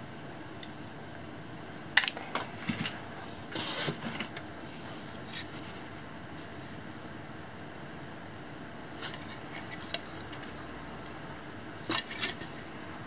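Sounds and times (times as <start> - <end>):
scraping of polystyrene packaging: 2.6 - 6.6.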